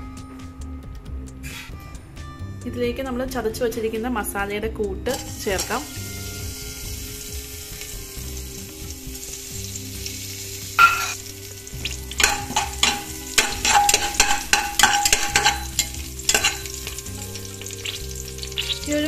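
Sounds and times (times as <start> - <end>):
spices sizzling in oil: 4.9 - 19.0
spoon scraping metal pot: 5.1 - 6.0, 10.8 - 11.2, 12.1 - 18.8
sharp metal clink: 10.8 - 11.2.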